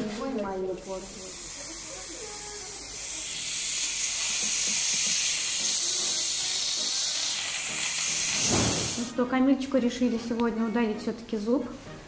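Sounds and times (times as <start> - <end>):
dental instrument hissing: 0.8 - 9.1.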